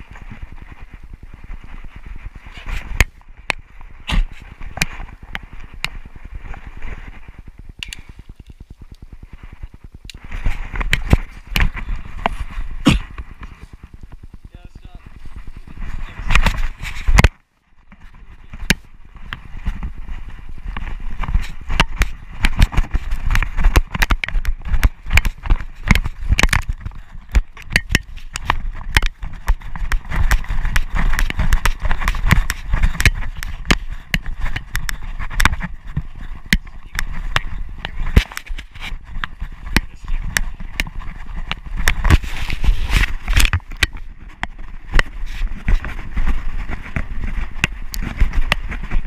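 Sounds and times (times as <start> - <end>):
steady low rumble: 0.0 - 17.0
paws striking ground: 0.0 - 49.0.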